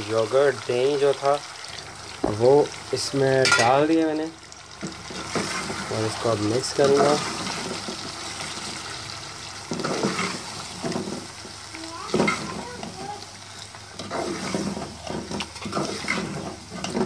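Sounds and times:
curry sizzling in a metal pot: 0:00.0 - 0:17.0
ladle stirring and scraping: 0:04.9 - 0:08.8, 0:13.7 - 0:17.0.

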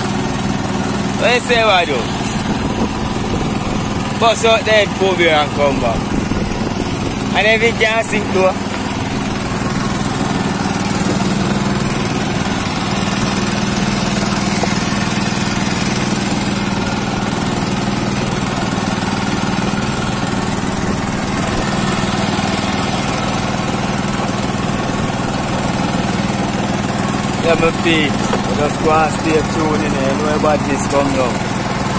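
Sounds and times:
small petrol engine running: 0:00.0 - 0:31.9.

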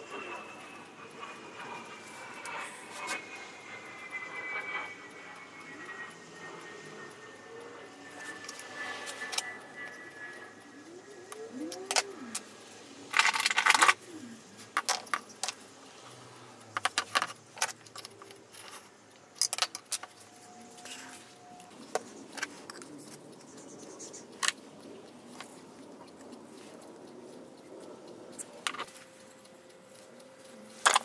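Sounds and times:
tools clicking and tapping: 0:08.1 - 0:10.1, 0:11.0 - 0:15.8, 0:16.6 - 0:31.0.

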